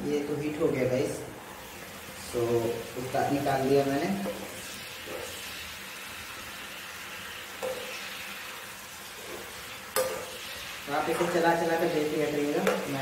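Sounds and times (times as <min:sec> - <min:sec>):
curry sizzling in a pan: 0:00.0 - 0:13.0
spoon stirring and knocking pan: 0:04.1 - 0:05.4, 0:07.6 - 0:08.0, 0:09.2 - 0:11.5, 0:12.5 - 0:13.0.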